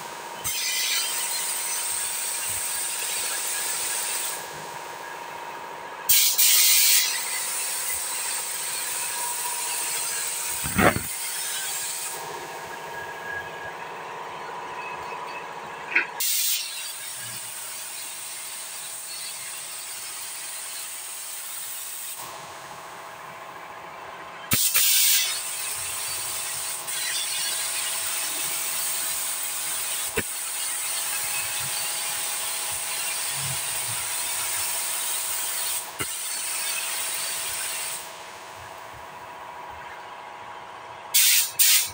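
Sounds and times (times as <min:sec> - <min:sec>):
paint spray gun hissing: 0:06.1 - 0:09.0, 0:09.8 - 0:12.2, 0:16.2 - 0:16.8, 0:24.5 - 0:38.5, 0:41.2 - 0:41.9
air blasts: 0:06.1 - 0:12.4, 0:16.2 - 0:18.6, 0:24.5 - 0:26.9, 0:41.2 - 0:41.9.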